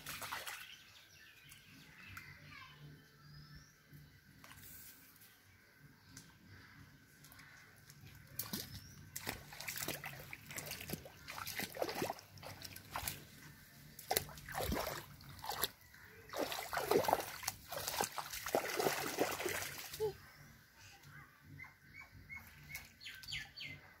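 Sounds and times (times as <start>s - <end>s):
footsteps splashing in muddy water: 0.0s - 0.7s, 7.2s - 20.0s.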